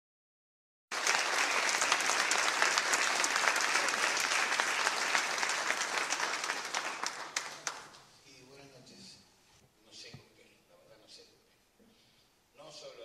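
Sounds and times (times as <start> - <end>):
audience applauding: 0.9 - 8.1.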